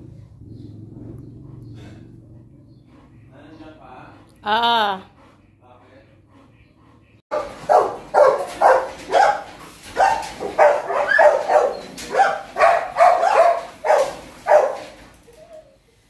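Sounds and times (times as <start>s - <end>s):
dog barking: 7.3s - 15.0s.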